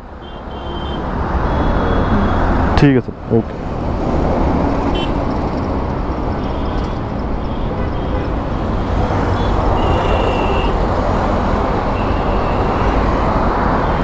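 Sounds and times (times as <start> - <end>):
road traffic rumble: 0.0 - 14.0
short high beep: 1.6 - 2.8.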